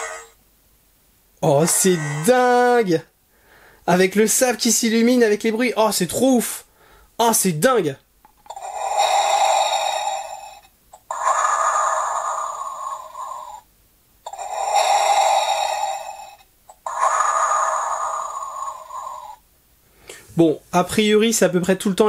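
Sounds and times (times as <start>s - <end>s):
mechanical respirator breathing: 0.0s - 0.4s, 1.4s - 3.8s, 8.5s - 13.7s, 14.3s - 19.4s.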